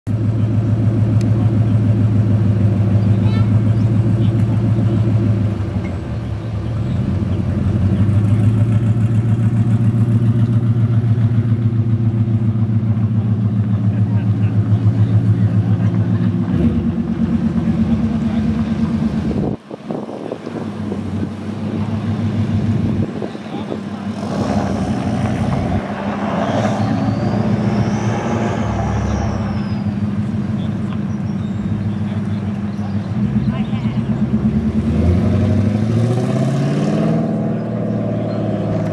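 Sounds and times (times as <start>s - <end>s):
car exhaust deep engine note: 0.1s - 38.9s.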